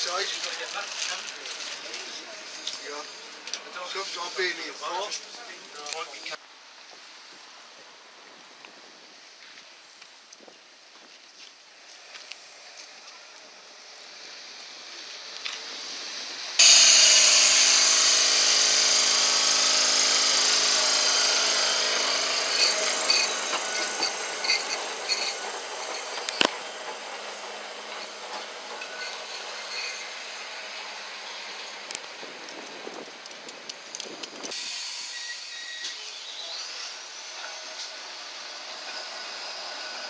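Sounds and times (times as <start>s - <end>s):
tram motor whine: 0.0s - 6.4s, 12.1s - 40.0s
wheel-on-rail noise: 0.0s - 6.4s, 11.4s - 40.0s
clicks from tram wheels: 17.0s - 34.6s.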